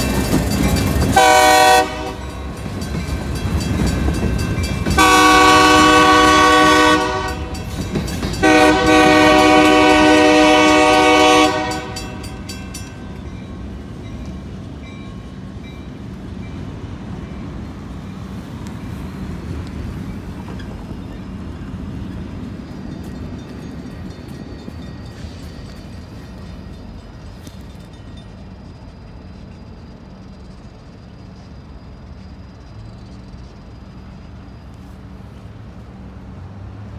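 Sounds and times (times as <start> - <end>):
freight cars rumbling over rails: 0.0 - 36.9
locomotive horn blasts: 1.2 - 2.5, 4.9 - 7.7, 8.4 - 12.5.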